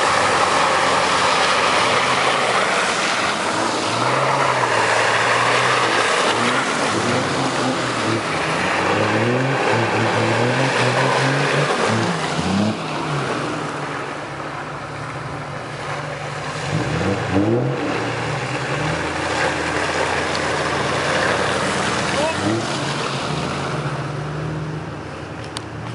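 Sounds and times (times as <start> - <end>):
off-road engines revving: 0.0 - 25.9
tyres churning through mud: 0.0 - 25.9.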